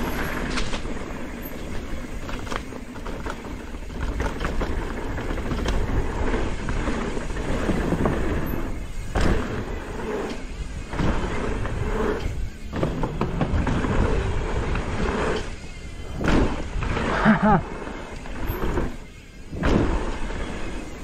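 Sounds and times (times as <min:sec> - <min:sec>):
mountain bike rattling over dirt: 0:00.0 - 0:21.0.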